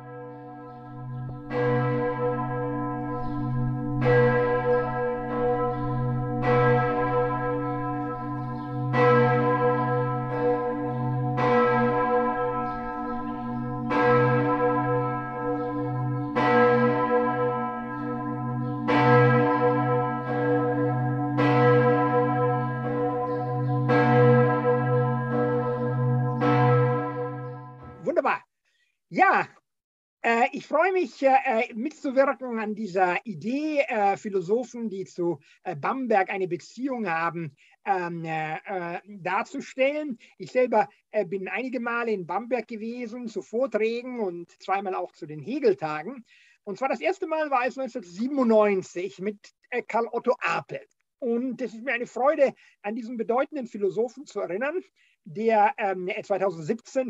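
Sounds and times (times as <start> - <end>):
church bells ringing: 0.0 - 28.2.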